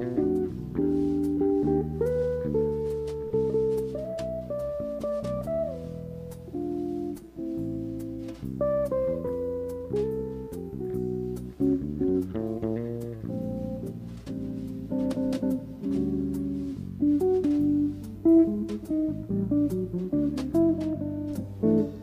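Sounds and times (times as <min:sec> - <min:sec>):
jazz trio playing slow ballad: 0:00.0 - 0:22.0.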